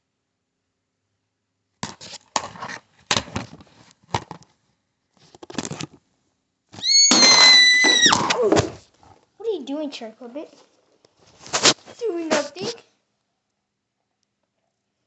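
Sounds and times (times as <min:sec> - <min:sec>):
cloth rustling against microphone: 0:10.5 - 0:12.8.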